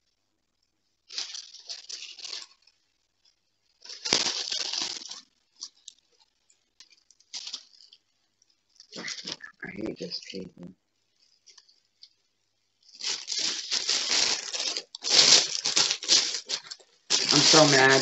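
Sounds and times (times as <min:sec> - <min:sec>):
paper crinkling and rustling: 0:01.1 - 0:08.1, 0:12.8 - 0:18.0.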